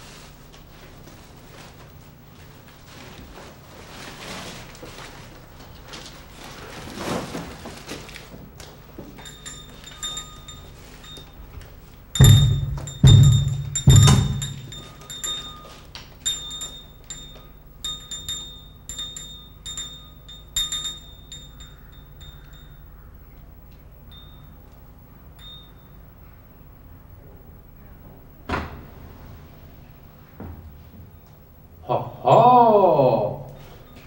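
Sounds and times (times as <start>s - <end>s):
small metal bells jingling: 9.1s - 23.1s, 24.1s - 26.1s
heavy knocks on wooden door: 12.2s - 14.9s.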